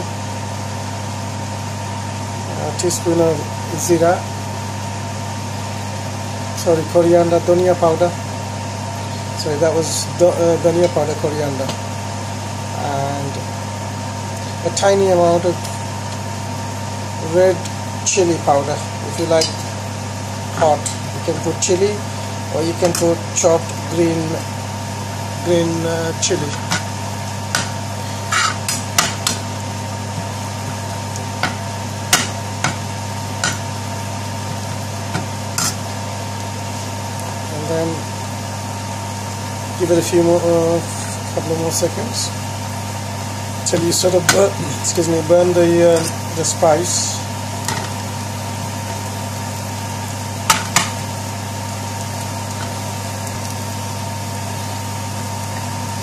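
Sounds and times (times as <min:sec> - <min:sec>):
spices frying: 0:00.0 - 0:56.0
steady low hum: 0:00.0 - 0:56.0
utensil scraping frying pan: 0:26.3 - 0:33.8, 0:34.4 - 0:36.0
utensil knocking on pan: 0:27.5 - 0:27.8, 0:33.4 - 0:33.6.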